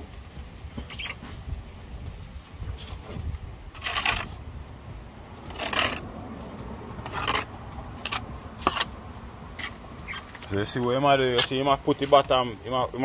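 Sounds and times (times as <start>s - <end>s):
trowel scraping mortar: 2.8s - 4.4s, 5.5s - 6.0s, 7.0s - 8.9s, 11.2s - 12.3s.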